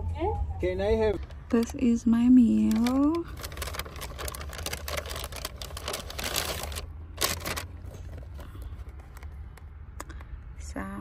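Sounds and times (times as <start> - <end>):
paper bag rustling: 2.4 - 9.4.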